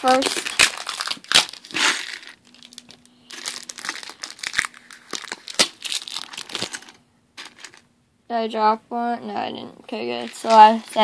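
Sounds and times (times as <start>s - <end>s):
stiff plastic crinkling: 0.0s - 7.8s, 10.2s - 11.0s.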